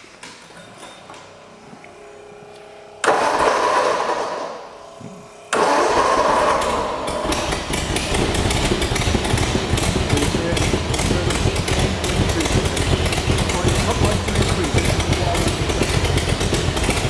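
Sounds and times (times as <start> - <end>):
car engine idling: 1.4 - 17.0
starter motor cranking: 3.0 - 4.7, 5.5 - 17.0.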